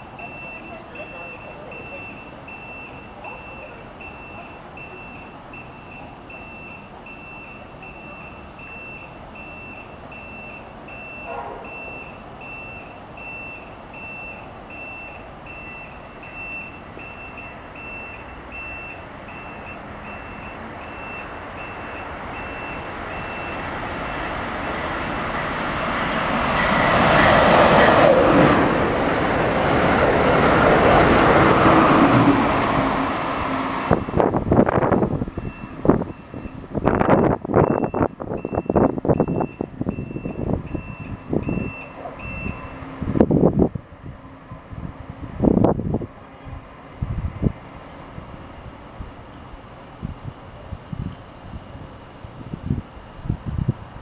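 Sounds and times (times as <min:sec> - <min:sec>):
high electronic beeps: 0:00.2 - 0:24.3, 0:35.4 - 0:42.8
train rushing past: 0:21.4 - 0:36.1.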